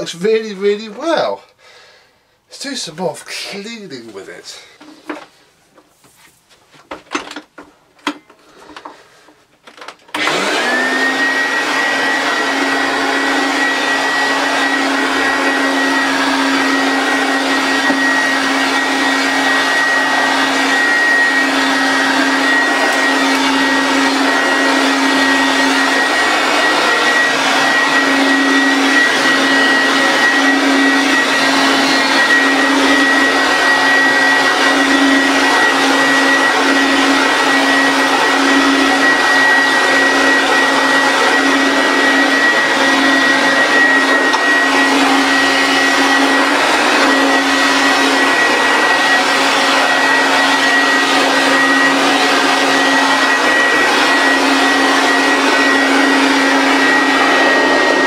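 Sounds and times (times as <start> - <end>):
vacuum cleaner running on carpet: 10.1 - 58.0.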